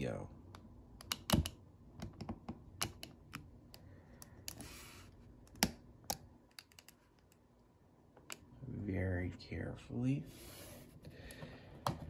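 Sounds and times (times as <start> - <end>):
plastic parts clicking: 5.5 - 7.4.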